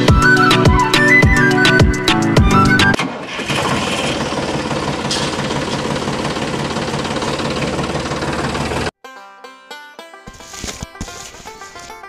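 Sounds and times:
diesel tractor engine idling: 3.0 - 8.9.

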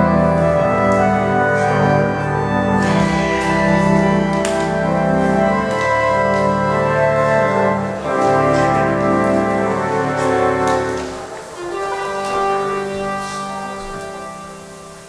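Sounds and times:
organ chords: 0.0 - 15.0.

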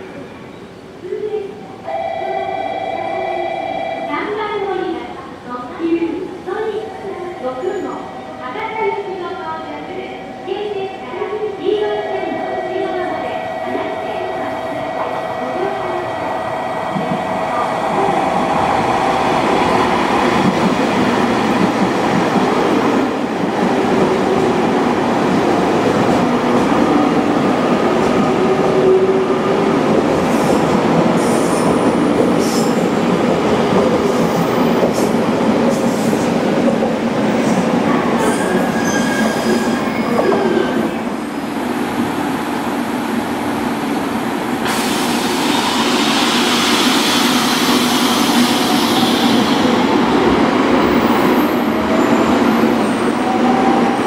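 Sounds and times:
train wheels rumbling on rail: 10.8 - 54.0.

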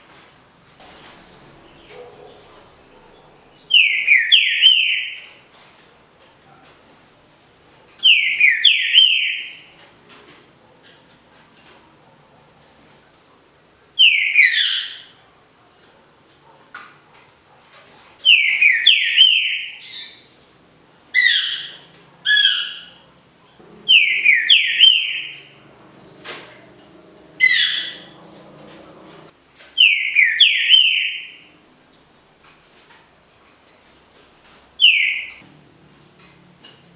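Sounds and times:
bird whistled song phrases: 2.9 - 5.2, 23.9 - 25.4, 29.8 - 31.4.

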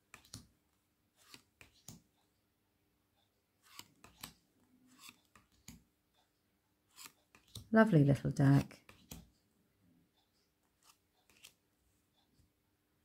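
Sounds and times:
cards clicking and sliding: 0.0 - 0.5, 1.1 - 2.2, 3.6 - 5.9, 6.9 - 7.7, 8.5 - 9.4, 10.6 - 11.7.

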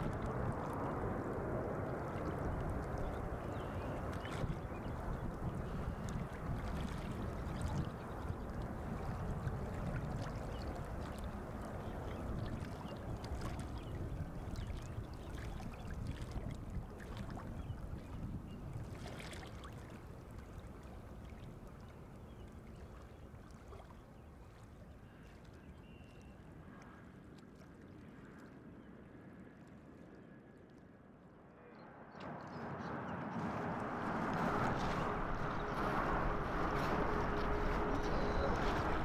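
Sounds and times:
jet engines rumbling: 31.9 - 39.0.

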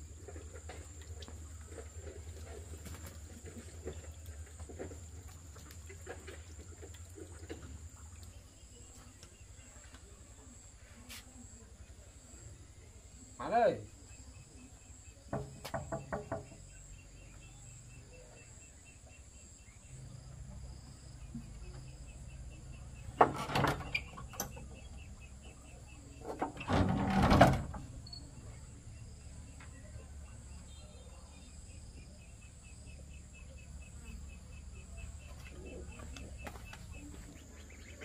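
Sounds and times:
insects chirping: 0.0 - 38.0
sharp knocks: 15.3 - 16.6.

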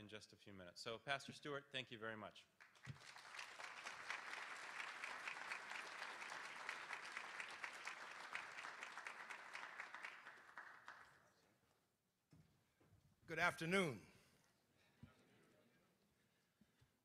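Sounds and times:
audience applauding: 2.6 - 11.4.

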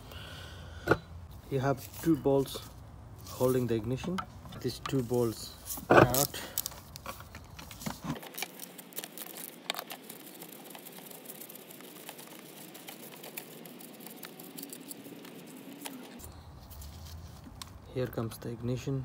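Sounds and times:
hand tools and metal parts clicking: 3.4 - 17.5.

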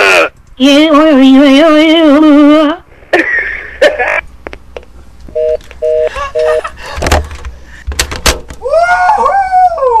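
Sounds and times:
telephone busy tone: 5.4 - 6.6.

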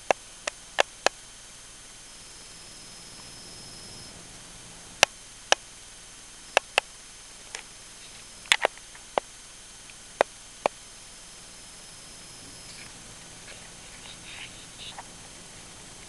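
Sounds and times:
steady background hiss: 0.0 - 16.0
sharp short clicks: 6.6 - 6.9.

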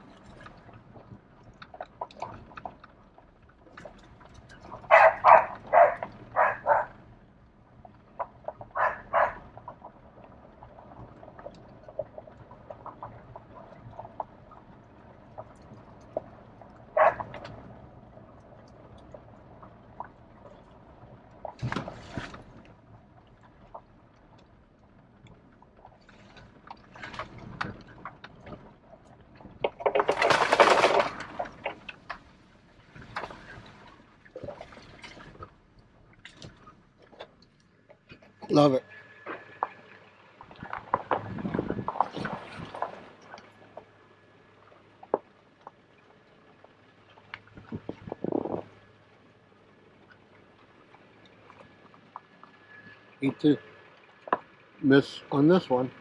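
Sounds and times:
vehicle splashing through puddle: 0.0 - 37.5, 38.1 - 56.0
vehicle rolling on dirt trail: 0.0 - 56.0
dog barking: 4.9 - 6.9, 8.8 - 9.4, 17.0 - 17.3.

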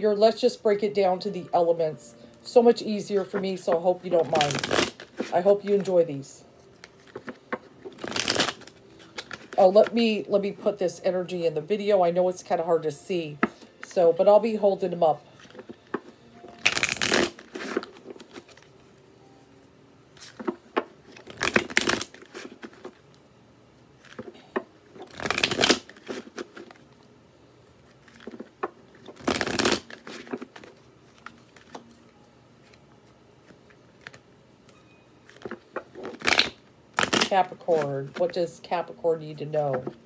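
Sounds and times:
cards being shuffled: 3.1 - 6.0, 6.7 - 10.1, 15.3 - 19.0, 20.2 - 23.1, 24.0 - 27.0, 27.8 - 34.2, 35.2 - 38.4.

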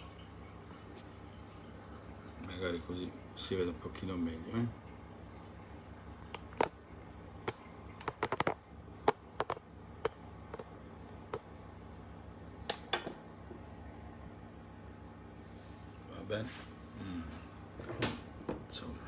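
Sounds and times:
steady low hum: 0.0 - 19.0
phone camera clicks and knocks: 8.0 - 10.7.

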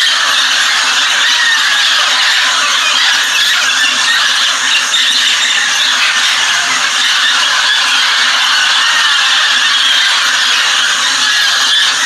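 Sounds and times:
flock of parrots squawking: 0.0 - 12.0.

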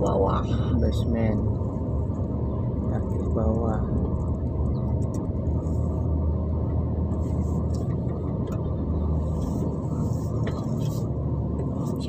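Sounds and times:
car engine and tyres rumbling: 0.0 - 12.0.

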